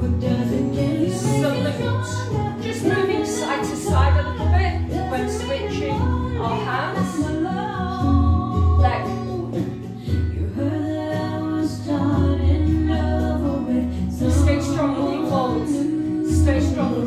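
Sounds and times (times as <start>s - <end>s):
song with singing over bass line: 0.0s - 17.0s.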